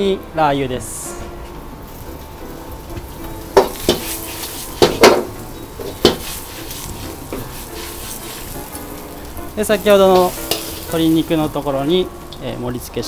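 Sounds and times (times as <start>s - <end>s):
light sizzle: 0.0s - 13.0s
metal ladle clanging against wok: 3.6s - 6.3s, 10.2s - 11.0s.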